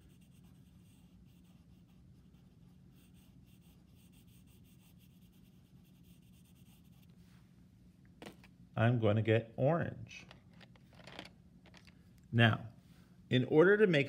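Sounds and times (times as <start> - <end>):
colored pencil scratching on paper: 0.0 - 7.2.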